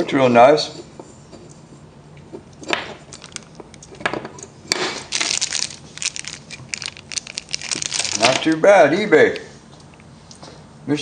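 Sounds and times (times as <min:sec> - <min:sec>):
plastic bag crinkling: 0:03.1 - 0:03.6, 0:05.0 - 0:09.5.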